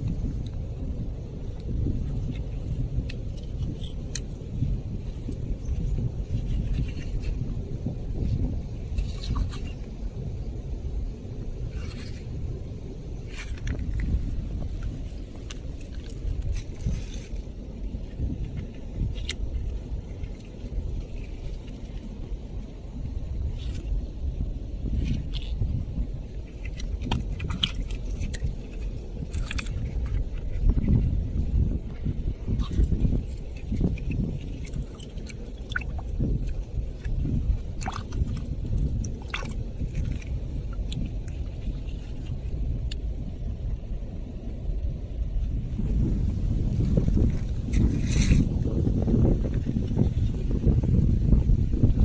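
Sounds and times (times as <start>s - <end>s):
wind rumble on microphone: 0.0s - 52.0s
small water splashes: 32.6s - 42.4s.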